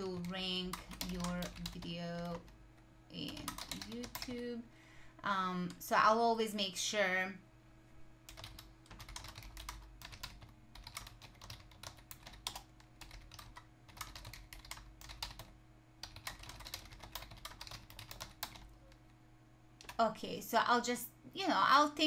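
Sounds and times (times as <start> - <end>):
typing on computer keyboard: 0.0 - 2.6, 3.2 - 4.4, 8.3 - 19.0.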